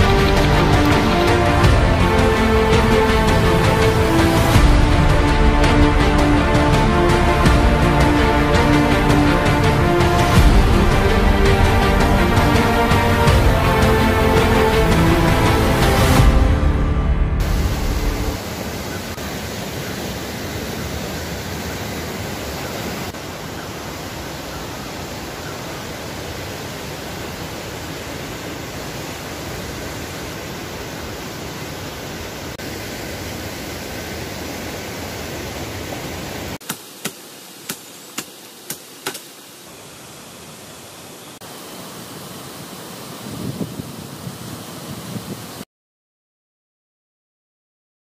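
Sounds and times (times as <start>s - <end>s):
steady rushing noise: 17.3s - 24.2s.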